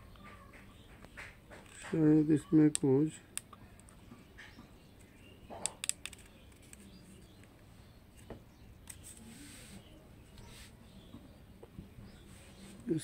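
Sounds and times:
soft rustle: 8.9s - 11.1s, 12.1s - 12.9s.

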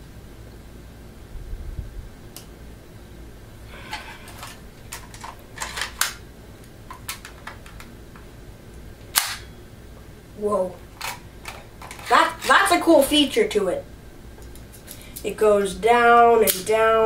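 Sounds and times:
plastic pistol clicks and rattles: 4.3s - 6.2s, 6.9s - 7.9s, 9.1s - 9.5s, 11.0s - 12.1s
loud sharp click: 9.1s - 9.5s.

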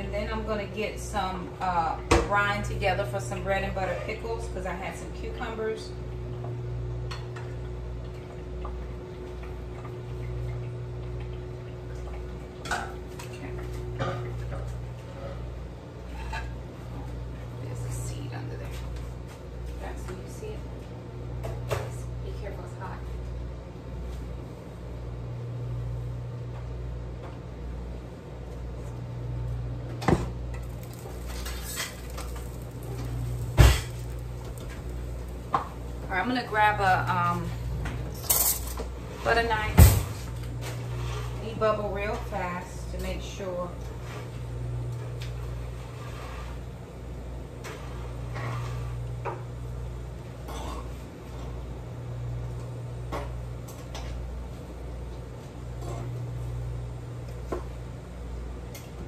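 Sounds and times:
steady low hum: 0.0s - 59.0s
low hum: 28.8s - 45.9s.

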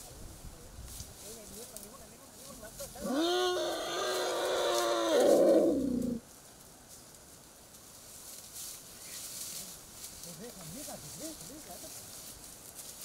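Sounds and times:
elephant calf crying: 3.0s - 6.2s.

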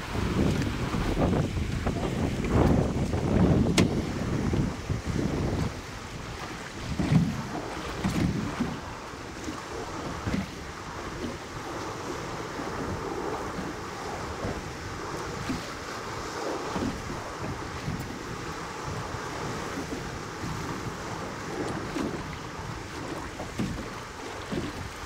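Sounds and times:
sea waves against boat hull: 0.0s - 25.0s
wind buffeting microphone: 0.0s - 25.0s.

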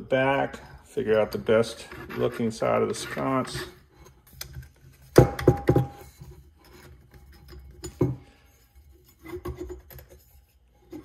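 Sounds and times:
light rubbing: 1.0s - 5.1s.

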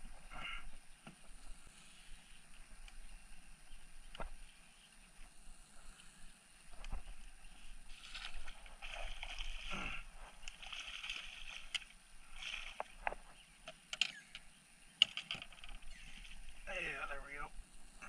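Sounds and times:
fishing gear scraping and rustling: 6.8s - 13.4s, 15.0s - 16.6s
sharp clicks and knocks: 13.0s - 15.8s.

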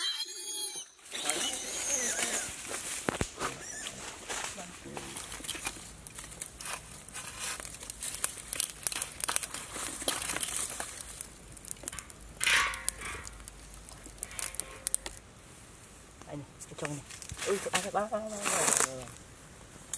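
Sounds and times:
dry leaves and sticks rustling: 1.0s - 19.3s
wood fire crackling: 1.0s - 19.9s
metal wok scraping: 14.2s - 15.0s.

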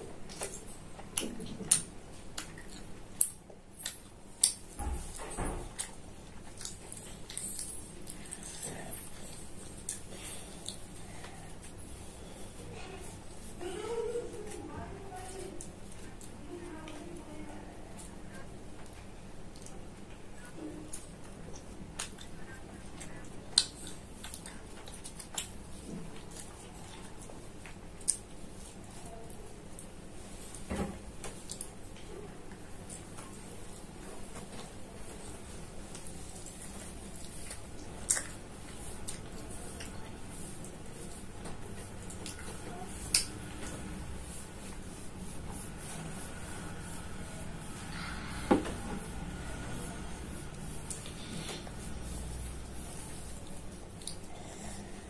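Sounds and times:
person chewing food: 0.1s - 12.0s, 20.9s - 28.6s, 35.7s - 55.0s.

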